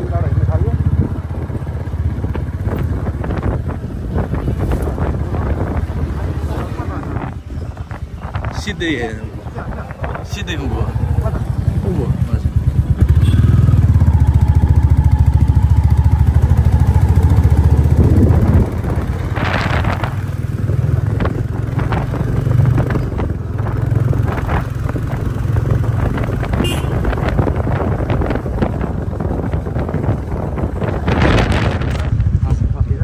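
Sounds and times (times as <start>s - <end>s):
vehicle engine pulsing: 0.0s - 33.0s.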